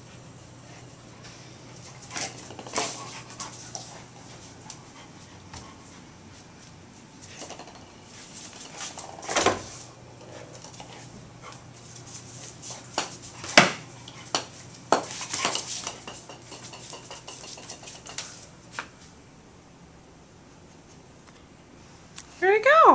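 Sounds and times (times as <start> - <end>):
golf ball clacking on tile floor: 7.3 - 9.6, 12.9 - 18.9.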